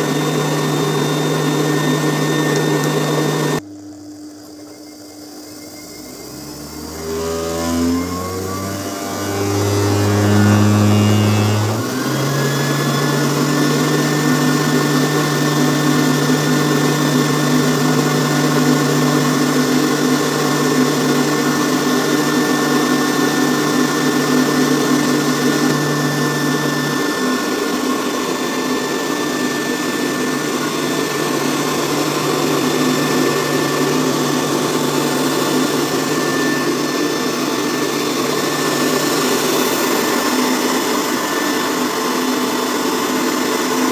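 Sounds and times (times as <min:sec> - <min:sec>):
electric blower motor hum: 0:00.0 - 0:03.9, 0:06.0 - 0:43.9.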